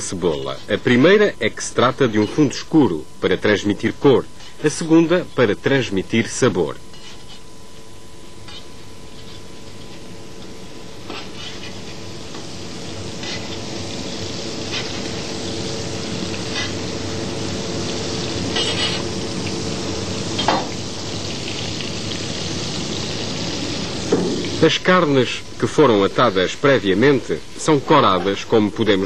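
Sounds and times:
onions sizzling on griddle: 0:06.3 - 0:07.6, 0:08.2 - 0:29.0
knife scraping metal plate: 0:06.9 - 0:07.5, 0:08.4 - 0:10.0, 0:11.0 - 0:11.9, 0:18.5 - 0:19.1.

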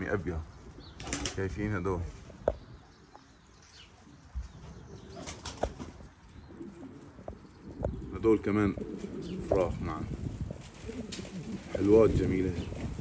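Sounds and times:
pigeons flapping wings: 0:01.0 - 0:01.4, 0:05.2 - 0:06.0, 0:10.5 - 0:13.0.

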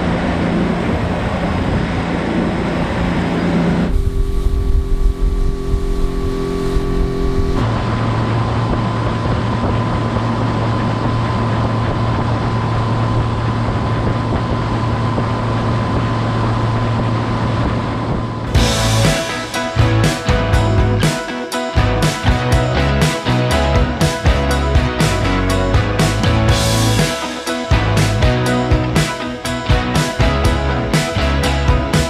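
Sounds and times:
outboard engine running: 0:00.0 - 0:32.0
wind rushing: 0:00.4 - 0:08.0.

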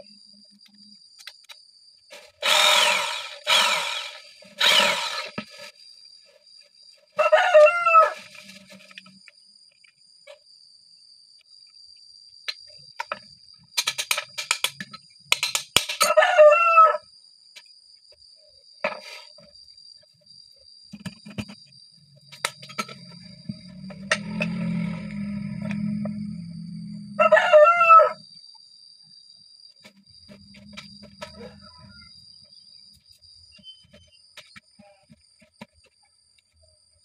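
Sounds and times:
rooster crowing: 0:07.2 - 0:08.3, 0:16.0 - 0:17.0, 0:24.3 - 0:28.2, 0:31.2 - 0:32.2
metal pump parts clattering: 0:13.8 - 0:16.1.

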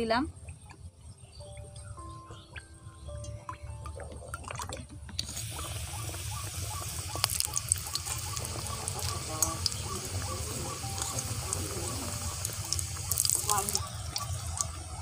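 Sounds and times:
oil being poured: 0:03.5 - 0:15.0
samosa sizzling in hot oil: 0:05.2 - 0:15.0.

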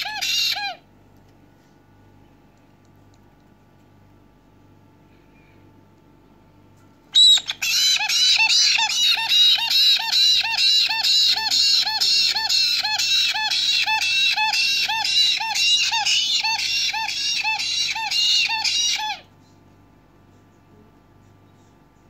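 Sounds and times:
parrot chicks begging calls: 0:00.0 - 0:00.8, 0:07.2 - 0:19.3.

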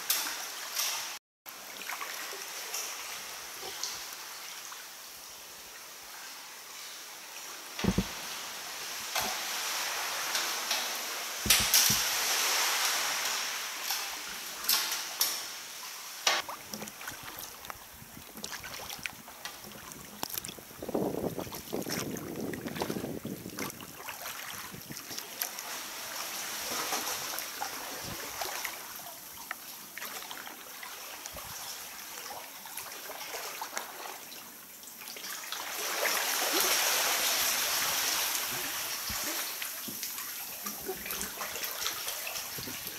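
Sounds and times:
water sloshing around kayak: 0:07.8 - 0:10.2, 0:11.4 - 0:13.2, 0:16.4 - 0:34.3
sharp splashes and knocks: 0:07.8 - 0:15.3, 0:16.2 - 0:25.6.

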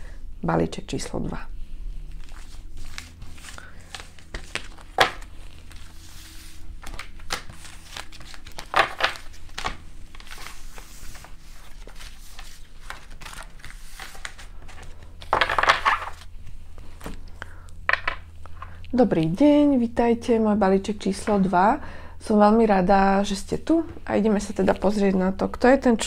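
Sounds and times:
rustle of cards being stacked: 0:02.2 - 0:17.2.

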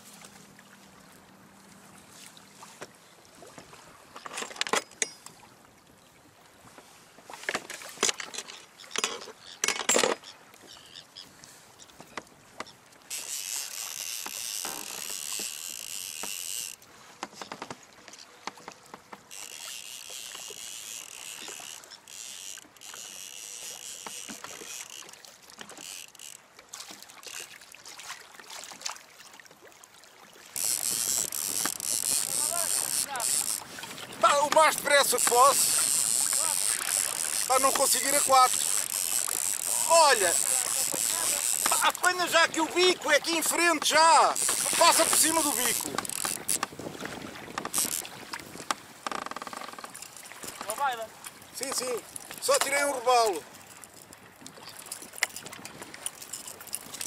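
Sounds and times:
rushing water: 0:00.0 - 0:57.0.

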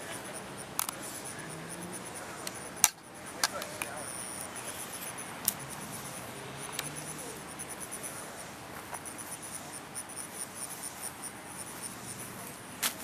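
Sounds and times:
background hiss: 0:00.0 - 0:13.0
insects chirping: 0:00.0 - 0:13.0
sharp clicks: 0:00.1 - 0:07.9.

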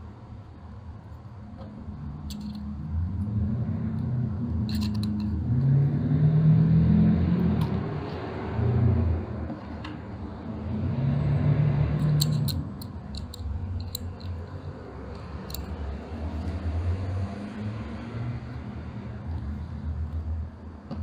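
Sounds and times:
light metal clicks: 0:12.0 - 0:16.5.

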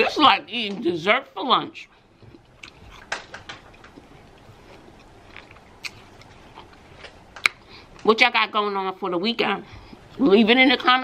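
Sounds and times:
chewing crisp apple crunches: 0:02.2 - 0:07.6.

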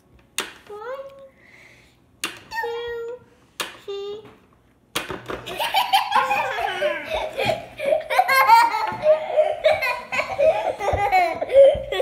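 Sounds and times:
young children giggling: 0:05.5 - 0:12.0.

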